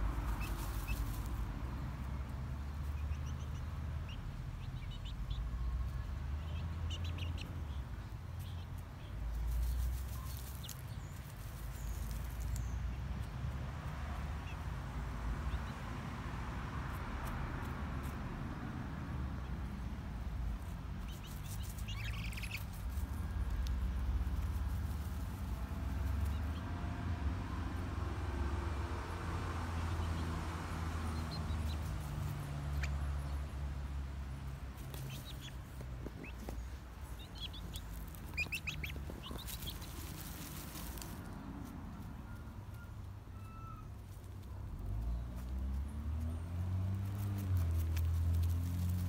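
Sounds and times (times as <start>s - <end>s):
chickens rustling in dry leaves: 0.0s - 5.1s, 5.8s - 49.0s
high bird chirps: 36.2s - 39.9s.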